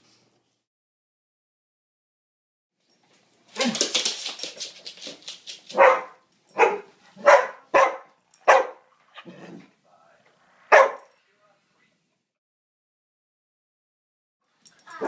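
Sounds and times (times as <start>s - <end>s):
dog barking: 5.7s - 8.9s, 10.7s - 11.1s.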